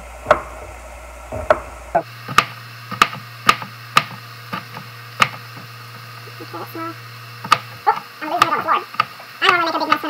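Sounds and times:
knife chopping on cutting board: 0:02.3 - 0:05.7, 0:07.4 - 0:09.2.

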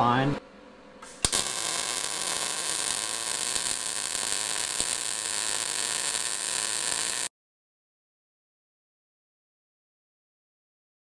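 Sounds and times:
welding arc crackling hiss: 0:01.0 - 0:07.3.

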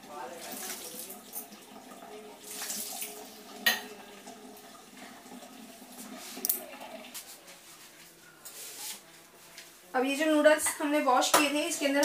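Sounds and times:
water trickling in a steel sink: 0:00.0 - 0:07.3.

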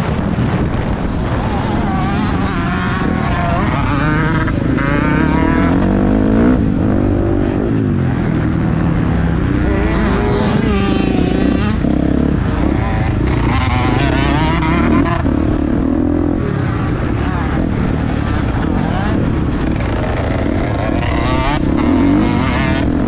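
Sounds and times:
motocross bike engine revving: 0:00.0 - 0:23.0.

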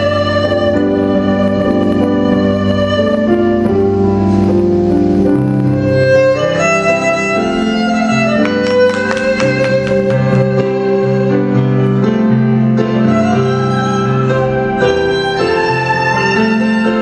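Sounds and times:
keyboard accompaniment: 0:00.0 - 0:17.0
violin melody in long notes: 0:00.0 - 0:17.0
sharp struck notes: 0:01.6 - 0:11.0.

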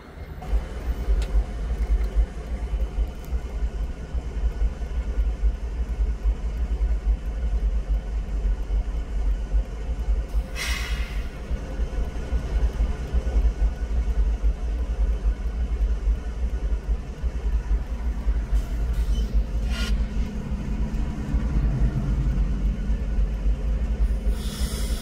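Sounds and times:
locomotives idling rumble: 0:00.0 - 0:25.0
air hiss: 0:10.4 - 0:11.4, 0:24.3 - 0:25.0.

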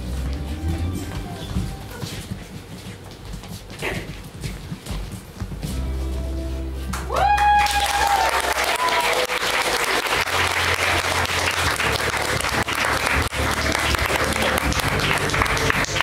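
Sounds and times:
audience applauding: 0:06.9 - 0:16.0
person whooping: 0:07.1 - 0:09.5.

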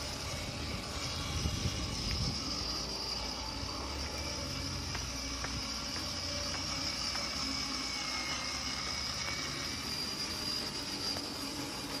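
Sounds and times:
electric motor whirring: 0:00.0 - 0:12.0
plastic wheels rolling on concrete: 0:00.0 - 0:12.0.

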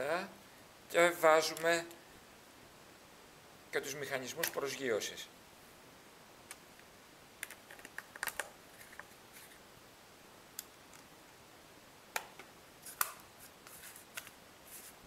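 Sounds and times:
small clicks and taps of parts: 0:04.4 - 0:04.6.

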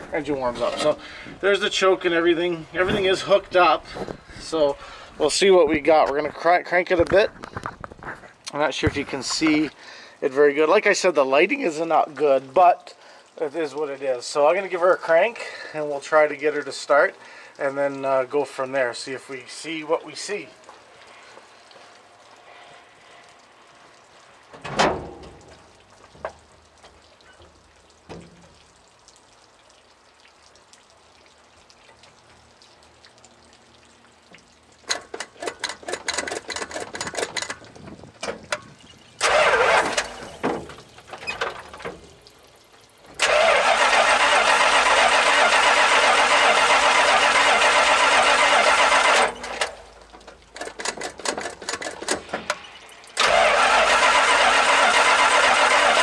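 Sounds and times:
starter motor cranking: 0:39.0 - 0:42.1, 0:43.1 - 0:49.8, 0:50.6 - 0:56.0.

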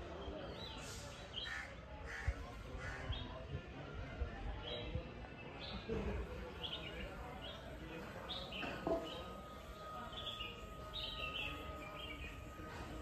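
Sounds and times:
outdoor background noise: 0:00.0 - 0:13.0
birds chirping: 0:04.6 - 0:13.0
thin high tone: 0:07.0 - 0:13.0.

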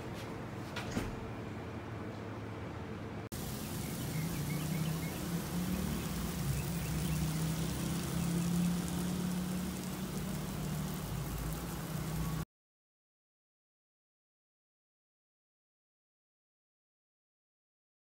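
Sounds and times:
lawn sprinklers spraying water: 0:03.3 - 0:12.4
faint bird chirps: 0:03.5 - 0:08.7.

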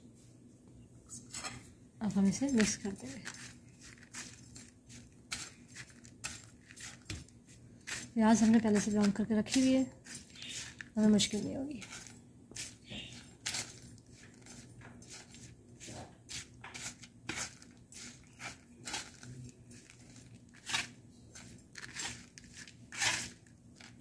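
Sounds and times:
metal skimmer scraping on paper: 0:02.2 - 0:07.2, 0:07.8 - 0:24.0.

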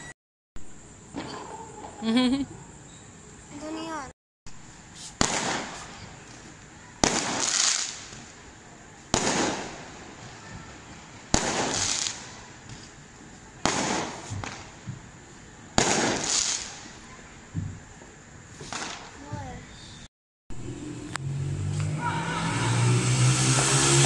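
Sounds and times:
fireworks bangs: 0:05.0 - 0:19.6.

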